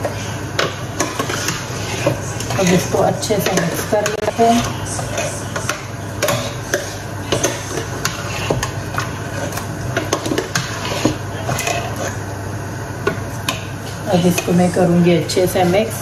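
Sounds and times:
metal spoon scraping a saucepan: 0:00.0 - 0:12.2.

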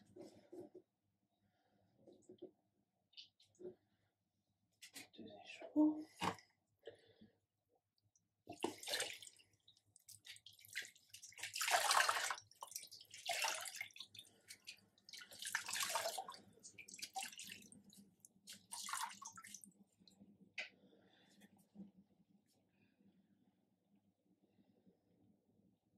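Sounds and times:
water splashing into plastic basin: 0:08.5 - 0:19.7.

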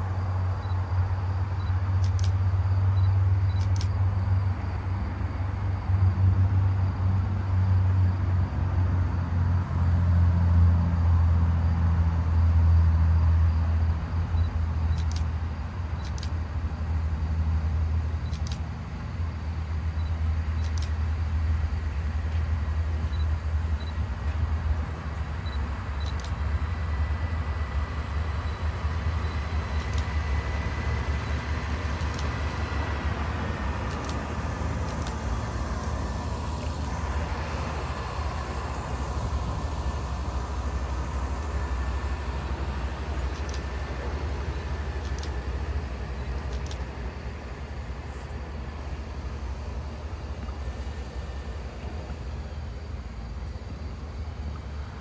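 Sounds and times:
thin steady whine: 0:00.0 - 0:55.0
truck engine rumble: 0:00.0 - 0:55.0
sharp clicks: 0:01.6 - 0:02.4, 0:03.0 - 0:04.0, 0:14.9 - 0:15.3, 0:16.0 - 0:16.4, 0:18.2 - 0:18.7, 0:20.0 - 0:21.0, 0:26.0 - 0:26.4, 0:29.7 - 0:30.1, 0:32.0 - 0:32.4, 0:33.9 - 0:34.2, 0:34.8 - 0:35.3, 0:43.3 - 0:43.7, 0:45.0 - 0:45.4, 0:46.5 - 0:46.8.

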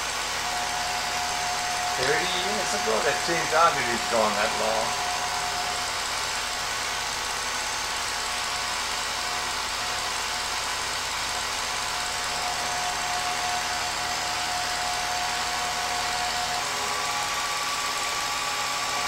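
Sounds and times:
film projector whirring: 0:00.0 - 0:19.0.

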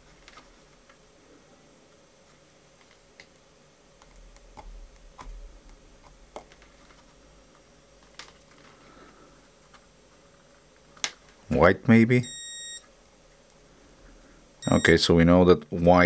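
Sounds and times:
soft handling noise: 0:02.2 - 0:11.6.

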